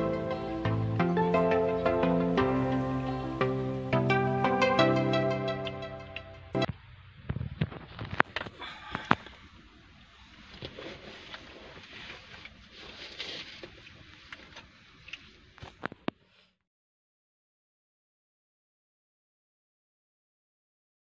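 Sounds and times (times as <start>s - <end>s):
rustling handling noise: 7.3s - 16.5s.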